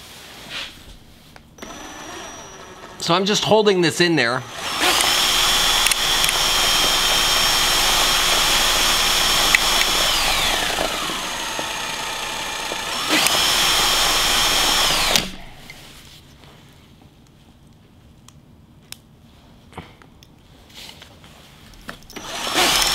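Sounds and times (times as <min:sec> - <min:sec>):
cordless drill motor whine: 0:01.6 - 0:03.2, 0:04.4 - 0:15.9, 0:22.1 - 0:22.9.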